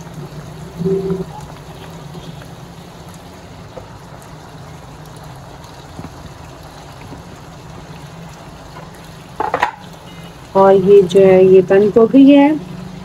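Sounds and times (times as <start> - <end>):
low hum: 0.0 - 1.6
chicken frying in a pan: 0.0 - 13.0.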